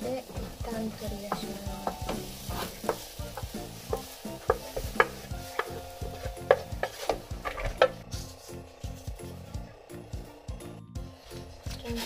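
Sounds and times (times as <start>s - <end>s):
wooden spatula scraping frying pan: 0.0s - 9.2s
light sizzle from hot pan: 0.0s - 9.6s.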